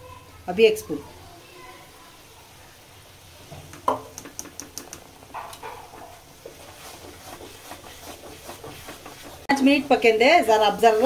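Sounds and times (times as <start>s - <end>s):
light tapping: 3.7s - 9.4s
spatula scraping paste: 5.5s - 11.0s.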